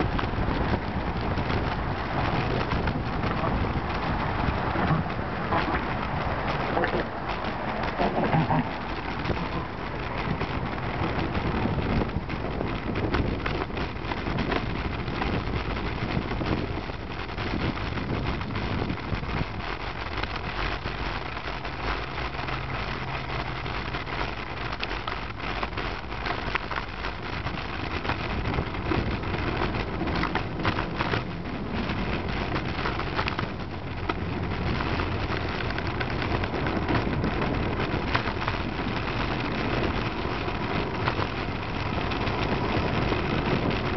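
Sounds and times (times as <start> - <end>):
motor traffic passing: 0.0 - 16.4
low engine hum: 0.0 - 43.9
wind on microphone: 0.0 - 43.9.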